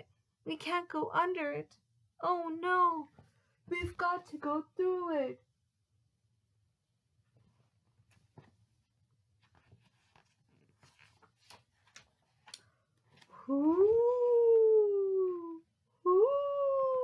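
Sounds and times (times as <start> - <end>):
book pages turning: 9.3 - 14.0.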